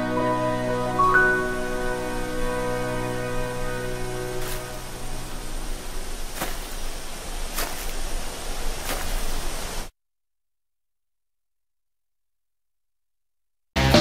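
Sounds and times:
held ballad chord: 0.0s - 6.0s
rushing wind: 1.5s - 9.9s.

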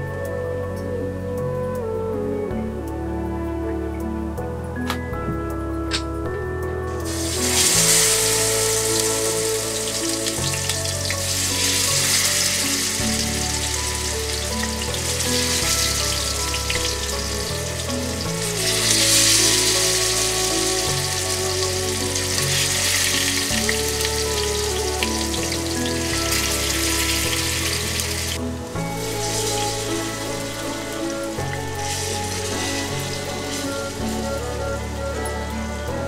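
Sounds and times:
soft background music: 0.0s - 36.0s
fish sizzling in hot oil: 7.0s - 34.6s.

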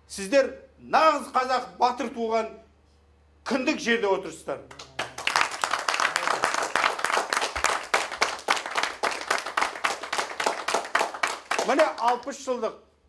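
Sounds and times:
audience applauding: 4.7s - 12.3s.

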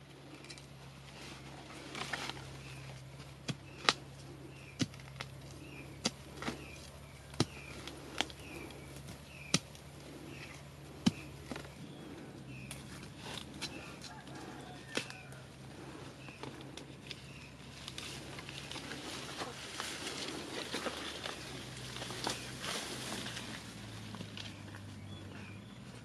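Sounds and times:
hand tool chopping soil: 3.4s - 9.8s, 10.4s - 11.8s, 14.9s - 15.2s.

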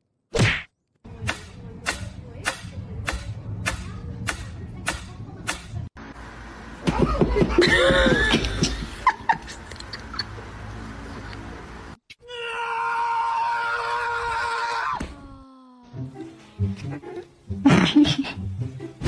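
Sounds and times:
people laughing loudly: 6.9s - 10.4s.

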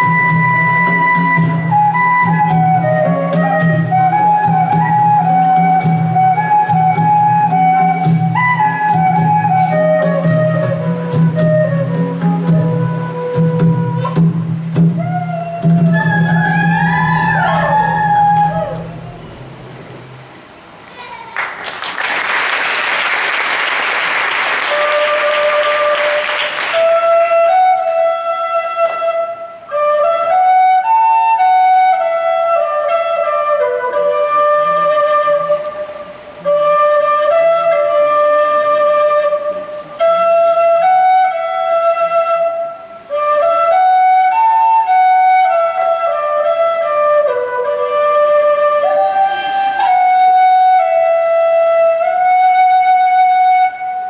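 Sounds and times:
slow flute melody: 0.0s - 20.1s, 23.6s - 54.0s
audience applause: 21.3s - 27.6s.

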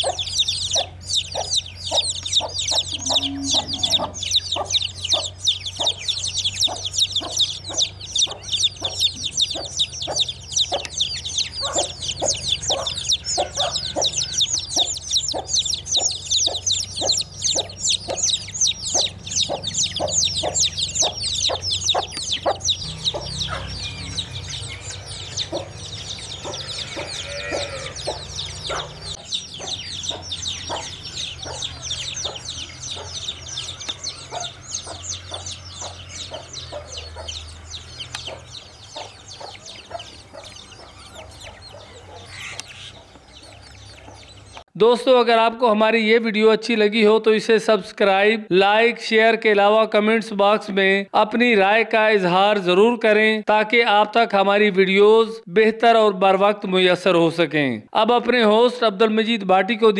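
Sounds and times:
hen clucking: 0.0s - 44.6s
chicks peeping: 0.0s - 44.7s.

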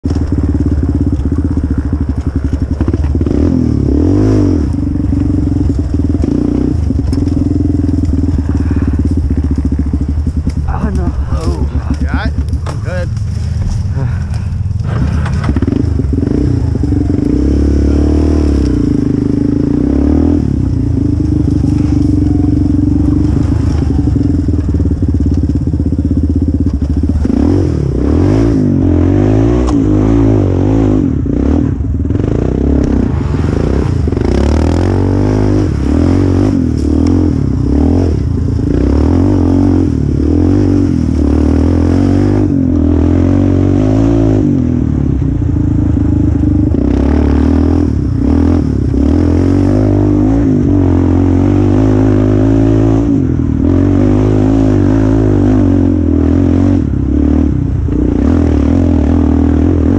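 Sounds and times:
quad clattering over bumps: 0.0s - 28.7s
quad engine revving: 0.1s - 59.9s.

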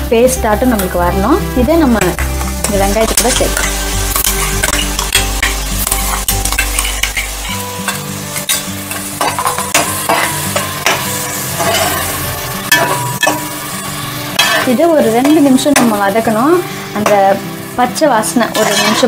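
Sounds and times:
oil sizzling: 0.0s - 19.0s
spoon scraping metal: 2.6s - 11.0s, 18.5s - 19.0s.

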